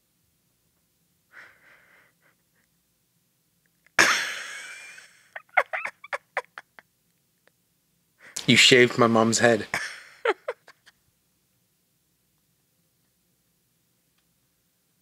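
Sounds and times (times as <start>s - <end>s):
woman wheezing breaths: 1.3s - 2.6s
woman laughing: 4.0s - 6.9s, 9.8s - 11.0s.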